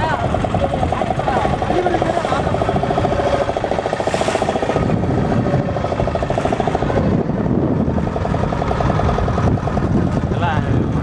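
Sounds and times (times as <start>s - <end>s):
motorboat engine running: 0.0s - 11.0s.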